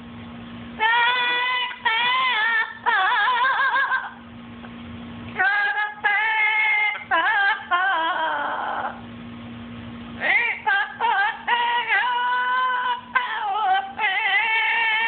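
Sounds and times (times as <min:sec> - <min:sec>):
parrot singing a melody: 0:00.8 - 0:04.2.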